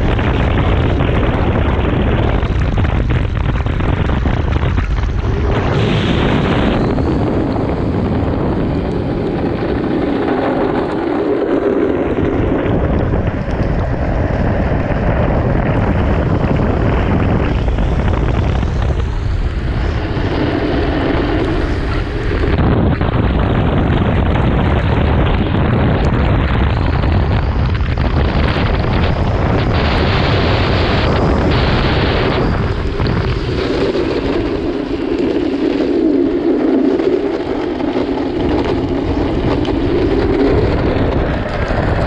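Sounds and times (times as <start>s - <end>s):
coarse drone: 0.0s - 42.0s
trike rolling on wet asphalt: 0.0s - 42.0s
wind buffeting microphone: 0.0s - 42.0s.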